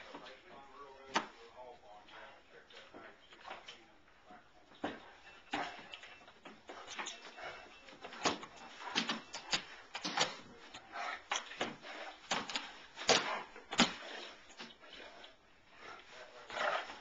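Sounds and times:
paw thumps: 0:04.6 - 0:17.0.

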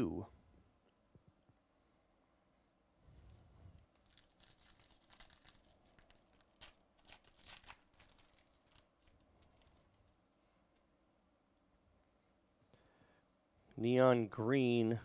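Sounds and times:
wrapper tearing and crinkling: 0:03.9 - 0:09.9.

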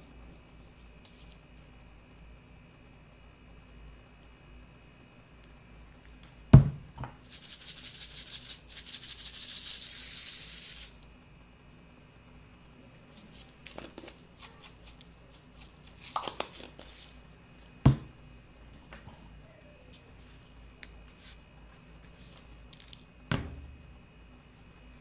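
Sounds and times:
sprinkles rattling in a jar: 0:07.2 - 0:11.0, 0:13.2 - 0:17.2, 0:22.7 - 0:23.1.

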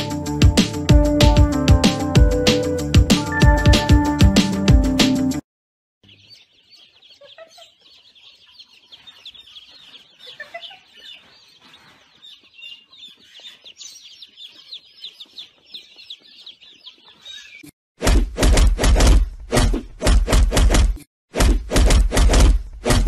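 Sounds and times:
baby chicks peeping: 0:06.0 - 0:17.7.

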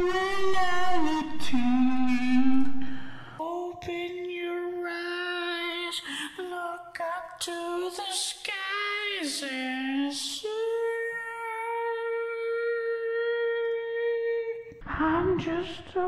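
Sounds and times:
person singing wordlessly: 0:00.0 - 0:16.0.

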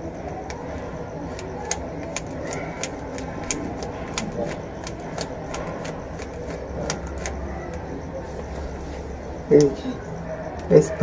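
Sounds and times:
low background hum: 0:00.0 - 0:11.0
puzzle cube layers clicking: 0:00.3 - 0:07.8.

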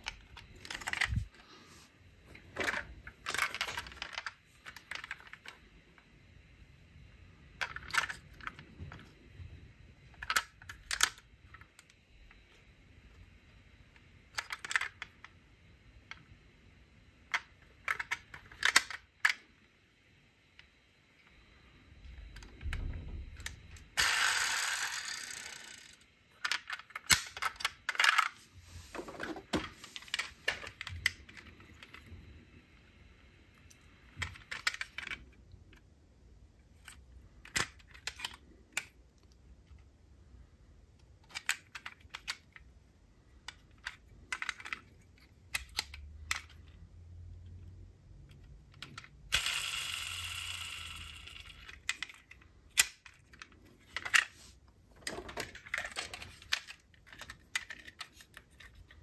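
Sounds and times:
metallic and plastic clicks: 0:43.4 - 0:46.8.

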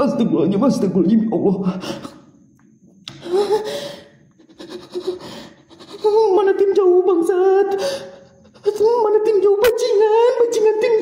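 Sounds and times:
person's wordless voice: 0:00.0 - 0:02.2.

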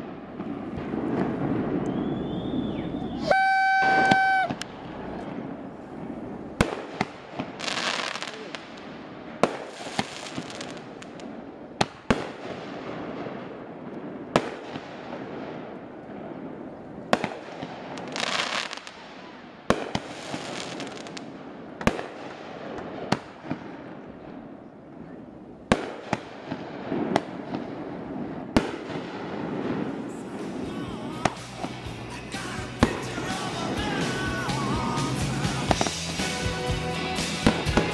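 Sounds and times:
fireworks booming: 0:00.0 - 0:37.9
fireworks hissing: 0:09.5 - 0:11.3, 0:29.7 - 0:37.9.

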